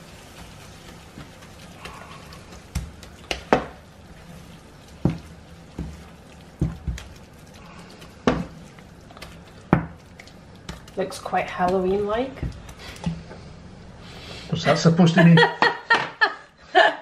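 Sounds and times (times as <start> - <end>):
spoon stirring in frying pan: 0.0 - 13.5
low steady hum: 0.0 - 17.0.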